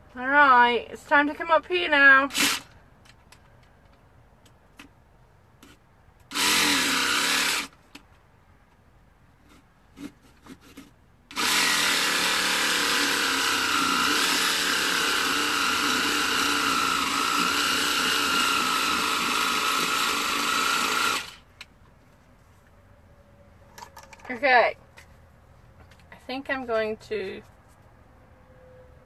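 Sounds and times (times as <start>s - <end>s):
jigsaw cutting pumpkin: 2.3s - 2.7s, 6.3s - 7.8s, 9.5s - 21.5s.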